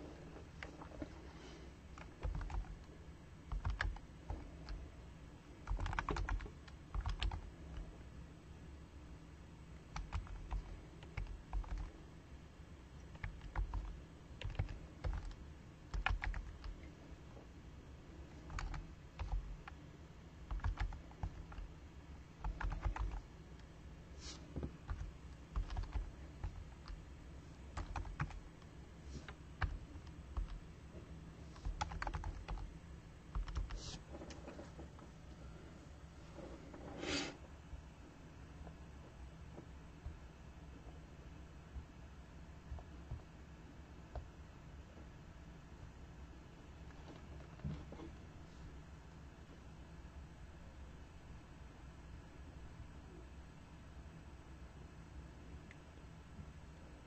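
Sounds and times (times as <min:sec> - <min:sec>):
keyboard typing clicks: 0:01.9 - 0:02.9, 0:03.5 - 0:04.8, 0:05.6 - 0:07.8, 0:09.9 - 0:11.9, 0:13.0 - 0:16.8, 0:18.4 - 0:19.8, 0:20.5 - 0:21.7, 0:22.4 - 0:23.2, 0:24.8 - 0:27.0, 0:27.7 - 0:28.4, 0:31.6 - 0:32.7, 0:33.3 - 0:33.8.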